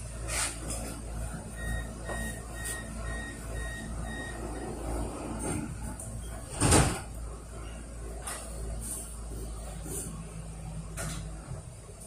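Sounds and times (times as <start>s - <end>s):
tram low hum: 0.0s - 12.0s
high door warning beeps: 1.5s - 4.9s.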